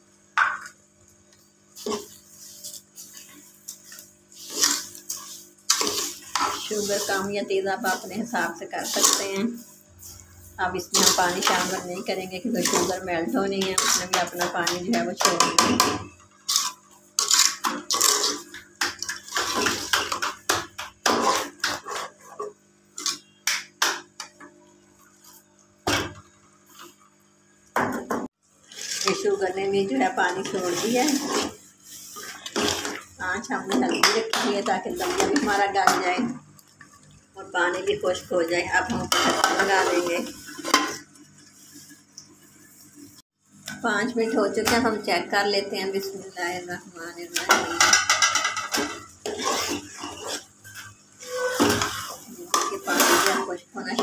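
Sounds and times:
metal spoon scraping pot: 4.3s - 22.5s, 28.7s - 36.3s, 38.8s - 41.0s, 47.4s - 54.0s.

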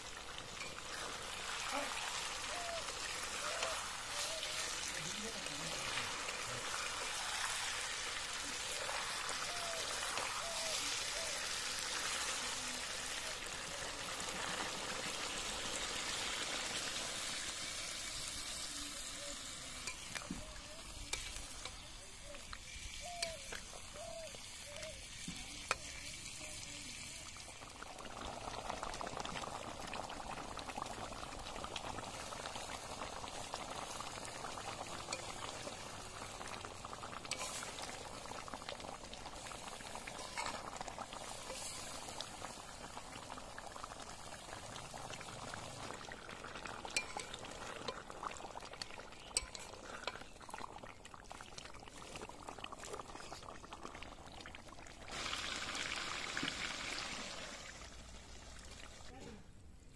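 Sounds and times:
curry bubbling and sizzling: 0.0s - 59.2s
metal spatula scraping wok: 37.3s - 37.7s.

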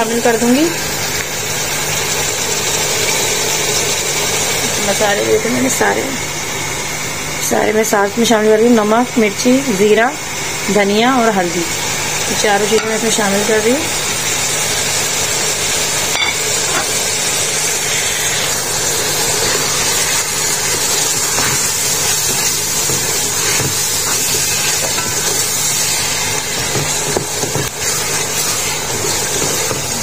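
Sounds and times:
meat and onions sizzling in oil: 0.0s - 30.0s
wooden spoon stirring: 19.4s - 30.0s.

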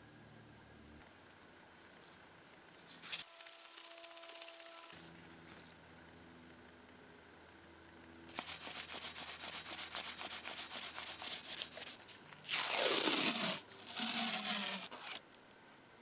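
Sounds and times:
masking tape ripping off roll: 10.5s - 15.2s.

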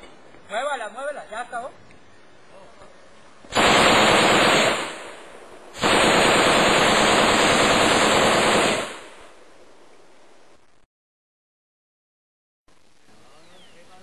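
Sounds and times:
automatic gunfire bursts: 3.5s - 9.2s.

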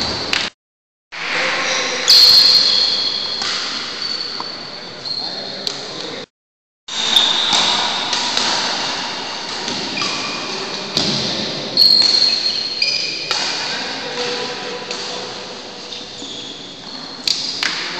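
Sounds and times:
shoe squeaks: 1.7s - 5.6s, 6.9s - 8.1s, 11.8s - 13.3s, 15.8s - 17.4s.

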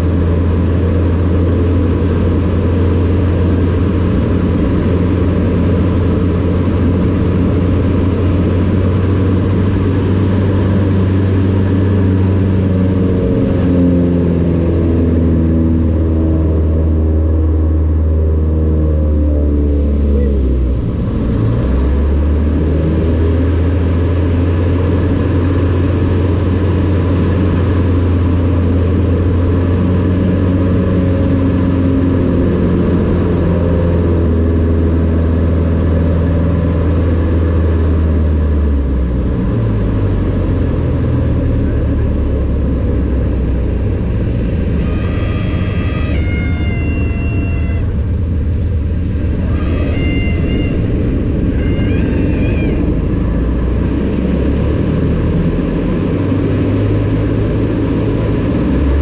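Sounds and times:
plane engine and propeller droning: 0.0s - 59.0s
brief high tone: 44.6s - 48.3s, 49.2s - 53.9s.

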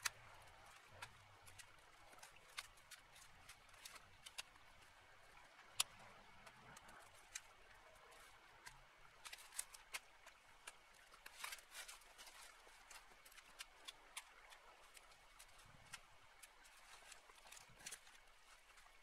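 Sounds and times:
twigs and branches snapping: 9.2s - 19.0s.

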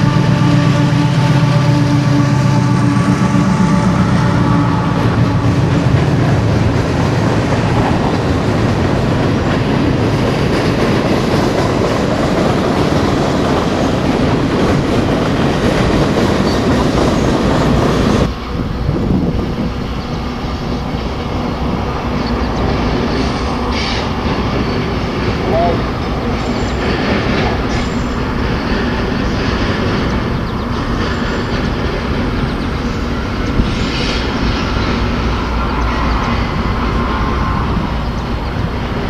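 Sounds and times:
diesel locomotive engine: 0.0s - 39.0s
distant train crossing steel bridge: 0.0s - 39.0s
freight cars rumbling on rails: 0.0s - 39.0s.

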